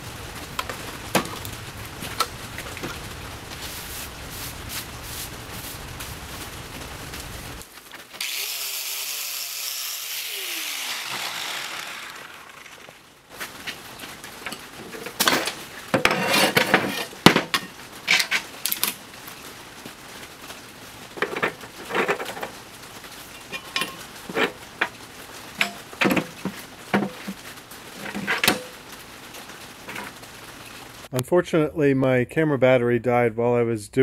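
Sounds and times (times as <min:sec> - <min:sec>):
metal parts clanking on steel table: 0:23.5 - 0:24.5.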